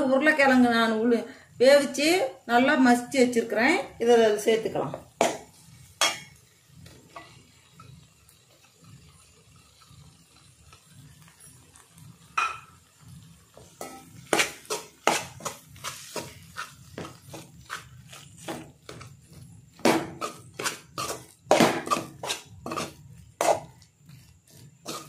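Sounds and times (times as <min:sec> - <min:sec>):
spoon scraping metal pan: 0:05.2 - 0:06.4, 0:13.6 - 0:25.0
spoon clinking on pan: 0:06.0 - 0:06.4, 0:12.3 - 0:12.8, 0:13.8 - 0:14.1.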